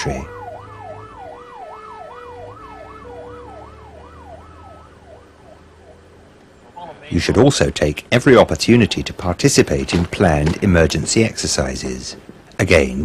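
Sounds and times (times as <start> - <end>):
siren yelping: 0.0 - 6.1.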